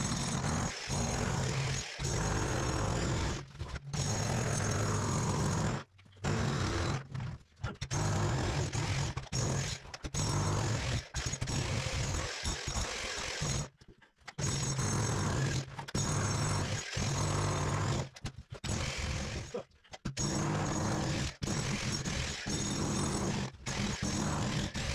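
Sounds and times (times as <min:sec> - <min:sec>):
demolition hammer chiselling concrete: 0:00.0 - 0:24.9.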